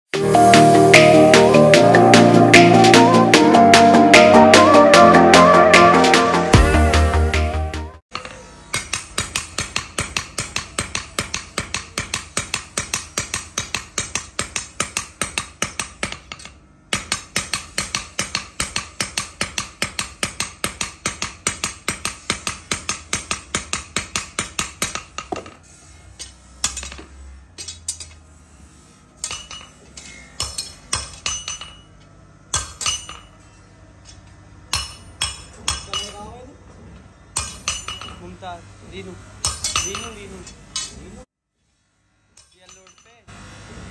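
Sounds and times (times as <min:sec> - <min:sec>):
hammer striking steel: 0:08.1 - 0:28.2, 0:29.2 - 0:33.6, 0:34.7 - 0:36.4, 0:37.4 - 0:38.4, 0:39.4 - 0:41.0, 0:42.4 - 0:43.2.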